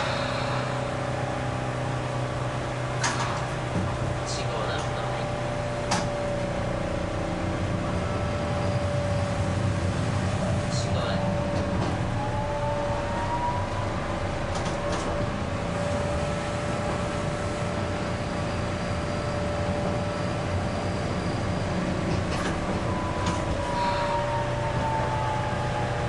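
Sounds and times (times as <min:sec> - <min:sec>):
tram motor whine: 0:00.0 - 0:26.0
wheels rumbling on rails: 0:00.0 - 0:26.0.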